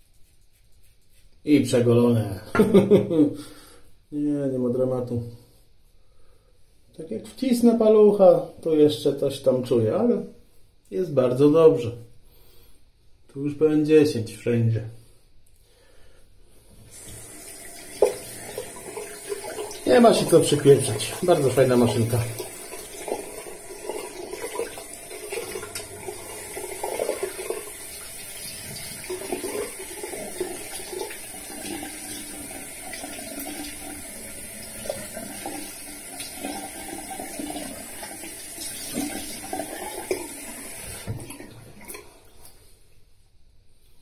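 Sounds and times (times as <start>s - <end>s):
sink tap running: 16.9s - 41.9s.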